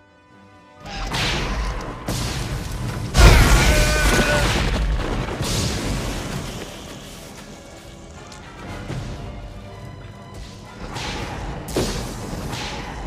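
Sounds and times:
music: 0.0s - 13.0s
rumbling booms and crashes: 1.1s - 6.7s.

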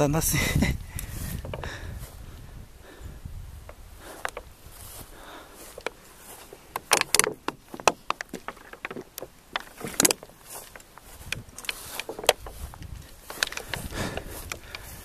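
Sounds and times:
footsteps through dry grass: 0.0s - 15.0s.

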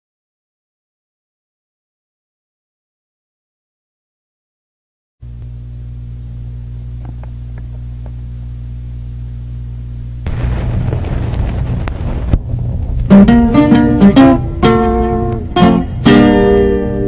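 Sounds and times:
rough noise with low rumble: 5.2s - 17.0s
steady low hum: 5.2s - 17.0s.

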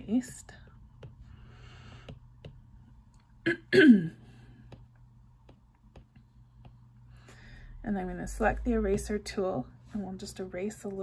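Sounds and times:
stylus tapping on glass screen: 4.7s - 6.9s.

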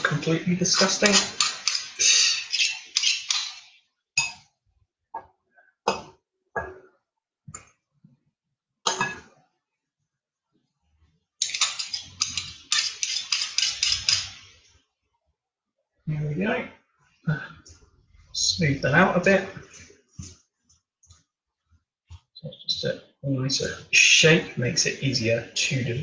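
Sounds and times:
spoon scraping glass bowl: 1.0s - 3.8s, 11.4s - 14.4s.

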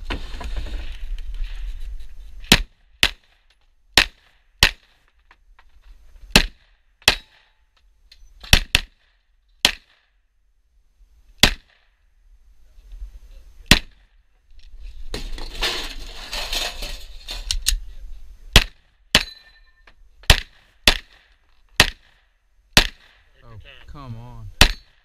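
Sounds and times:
pistol shots: 22.8s - 23.3s.

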